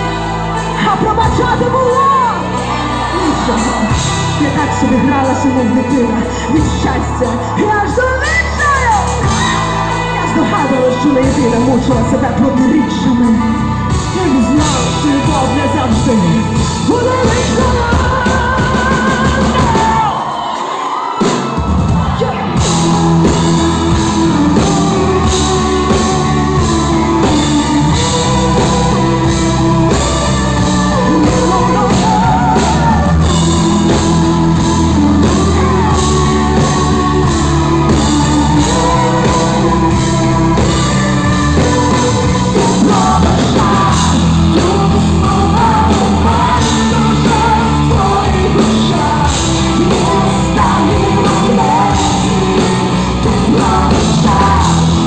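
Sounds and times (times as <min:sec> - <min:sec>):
woman singing: 0:00.0 - 0:20.3, 0:22.2 - 0:55.0
live rock band playing: 0:00.0 - 0:55.0.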